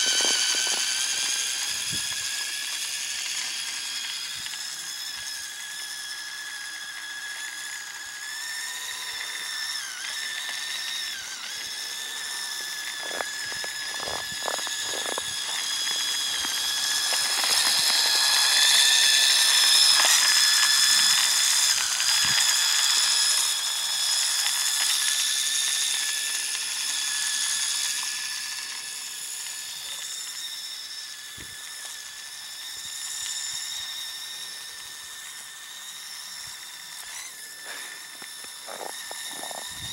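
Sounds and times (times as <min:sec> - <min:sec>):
toy snowmobile motor whining: 0:00.0 - 0:39.9.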